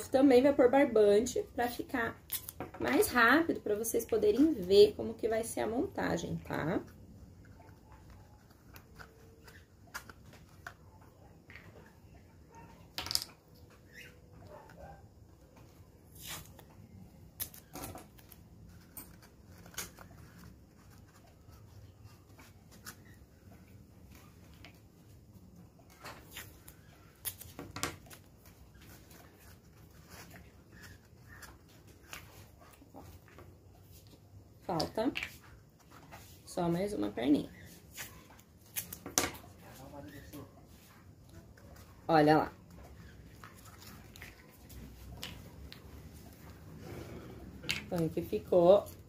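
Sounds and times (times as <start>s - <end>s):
paper clicks and rustles: 17.4s - 23.2s.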